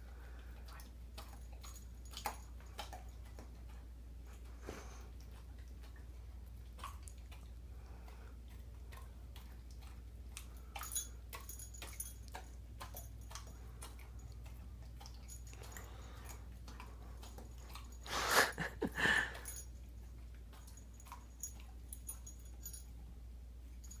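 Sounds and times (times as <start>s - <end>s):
dog licking and lip smacking: 0.0s - 23.8s
dog breathing sounds: 4.3s - 5.6s, 13.2s - 19.7s.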